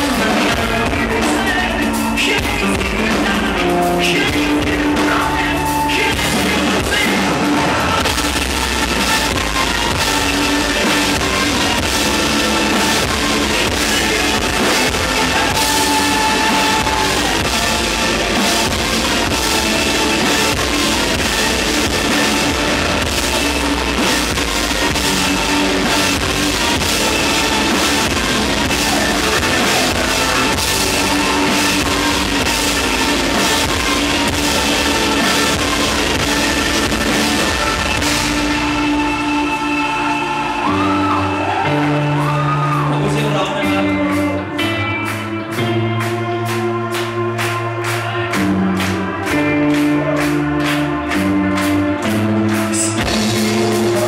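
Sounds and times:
rock band playing live: 0:00.0 - 0:54.0.

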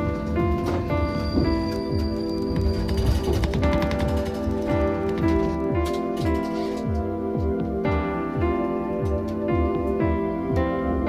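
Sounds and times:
instrumental music with steady beat: 0:00.0 - 0:11.0.

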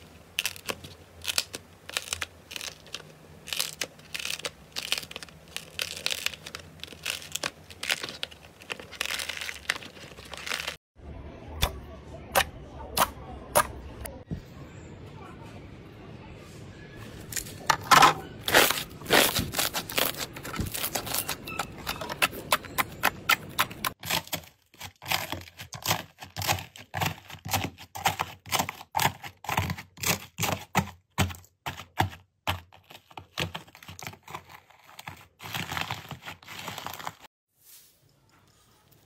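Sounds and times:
dried slime crunching: 0:00.0 - 0:10.8, 0:18.4 - 0:37.8.

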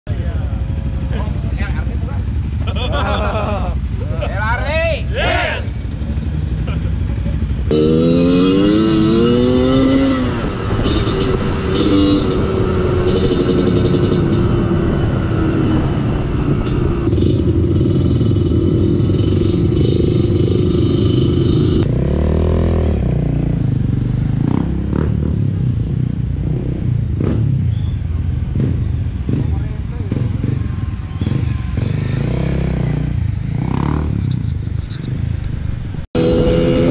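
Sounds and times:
dirt bike engine revving: 0:07.6 - 0:23.6, 0:30.1 - 0:34.6, 0:36.2 - 0:36.9.

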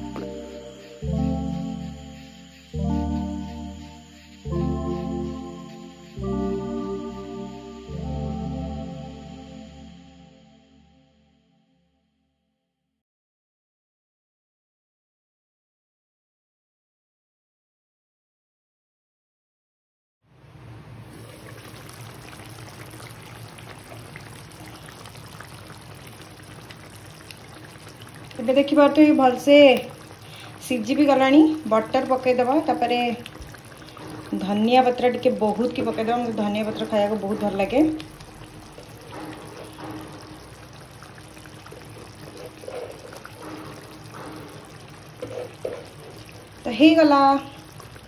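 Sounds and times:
curry bubbling in a pan: 0:20.9 - 0:48.0.

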